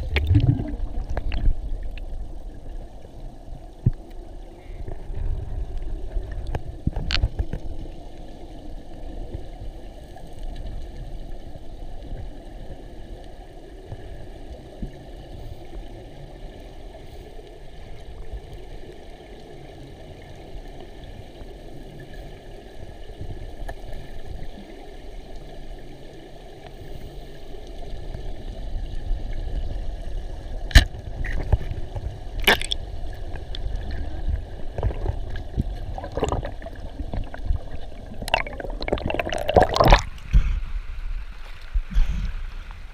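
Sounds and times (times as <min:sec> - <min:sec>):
river water rushing and gurgling: 0:00.0 - 0:02.6, 0:32.4 - 0:32.8, 0:35.8 - 0:40.3.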